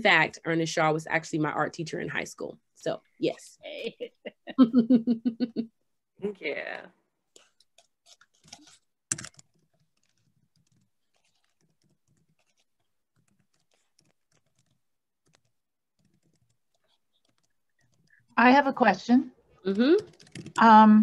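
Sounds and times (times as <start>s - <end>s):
keyboard typing: 7.4s - 18.4s, 19.7s - 20.8s.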